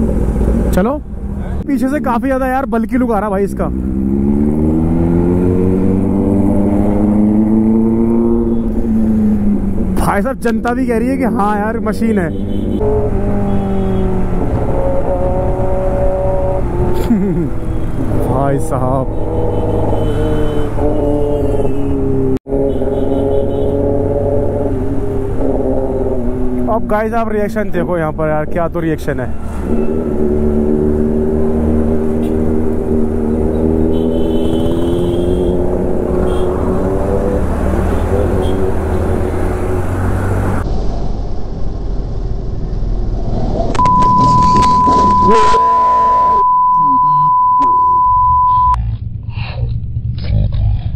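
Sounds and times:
road noise: 0.0 - 50.9
loud steady high beep: 43.8 - 48.8.

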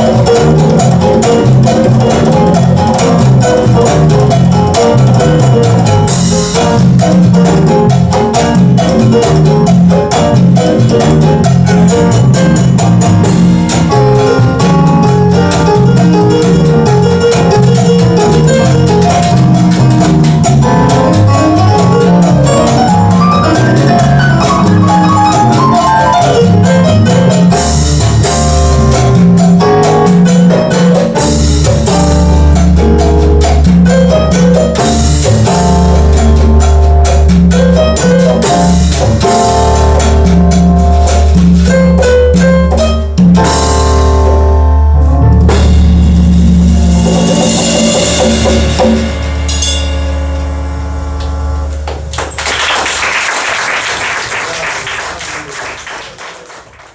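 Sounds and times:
live band playing: 0.0 - 56.9
audience applause: 51.9 - 56.9.

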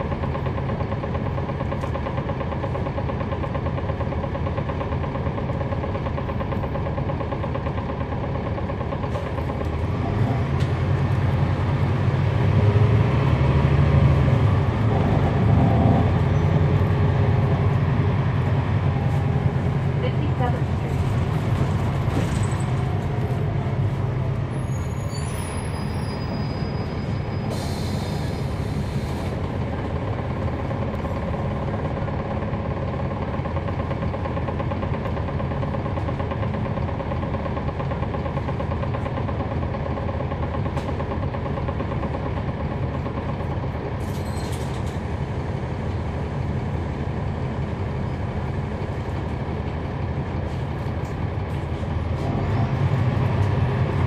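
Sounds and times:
bus diesel engine rumbling: 0.0 - 54.0
high squeal: 24.6 - 28.6.

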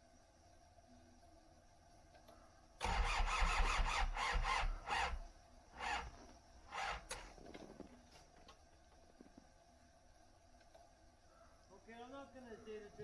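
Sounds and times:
starter motor cranking engine: 2.8 - 5.2, 5.8 - 7.4.

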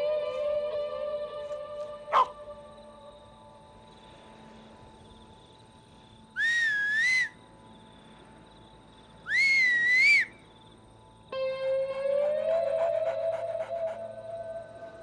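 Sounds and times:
person whistling: 6.4 - 7.4, 9.3 - 10.3.

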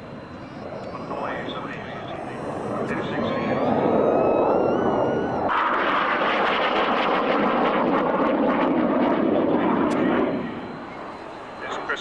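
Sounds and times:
jet engine flying past: 0.0 - 12.0.

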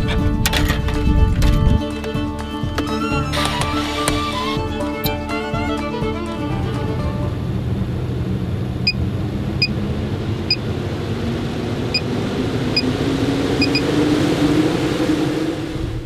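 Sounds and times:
vent fan humming: 3.3 - 16.0
short electronic beeps: 13.6 - 13.8.

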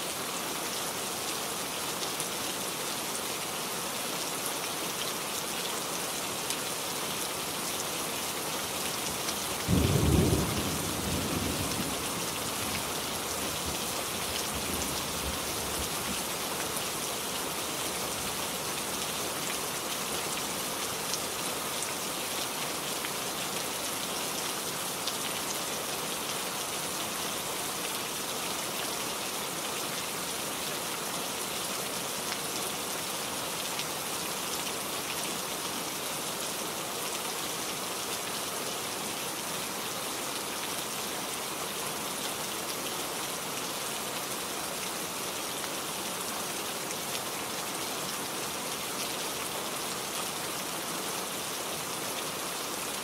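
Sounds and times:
rain hissing: 8.6 - 18.8.

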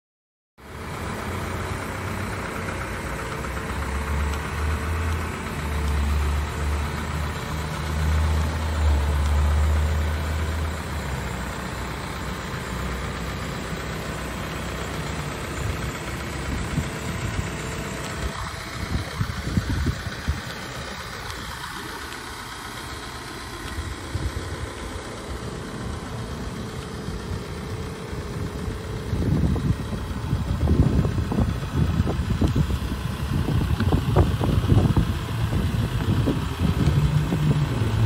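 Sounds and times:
diesel truck engine idling: 0.6 - 38.0.

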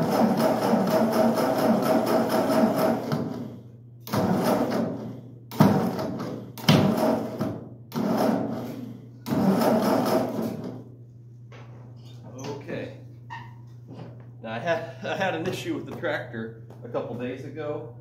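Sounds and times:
tractor starter cranking engine: 4.1 - 10.8.

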